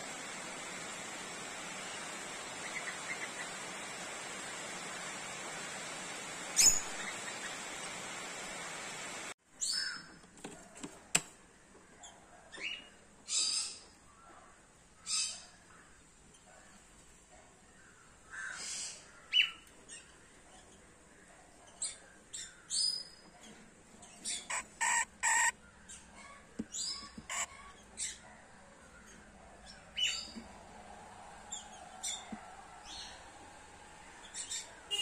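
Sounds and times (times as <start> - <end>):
parrots chirping and squawking: 24.2 - 25.6, 26.8 - 28.2.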